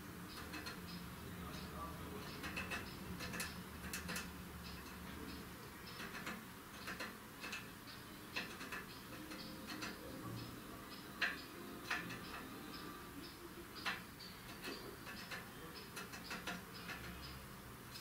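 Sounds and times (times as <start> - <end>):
bird beak tapping on wood: 2.2 - 7.7, 8.4 - 10.0, 13.8 - 17.3.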